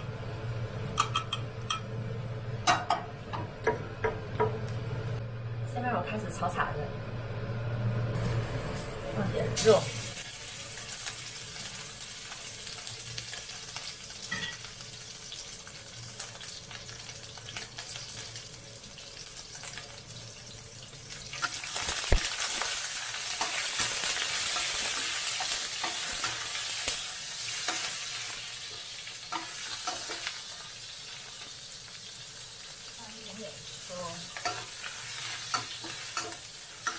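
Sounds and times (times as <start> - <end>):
meat sizzling in hot oil: 9.6 - 36.9
metal spatula stirring in wok: 34.3 - 36.9.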